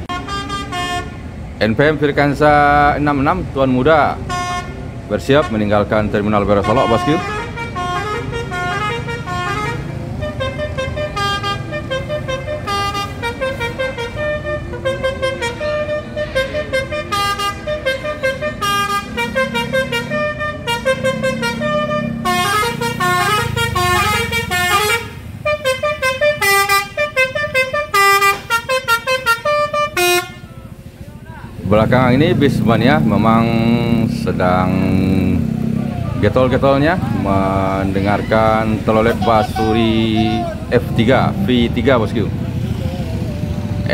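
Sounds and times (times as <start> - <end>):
musical bus horn tune: 0.0 - 1.4, 4.0 - 31.0, 36.9 - 41.0
diesel engine running: 5.9 - 43.9.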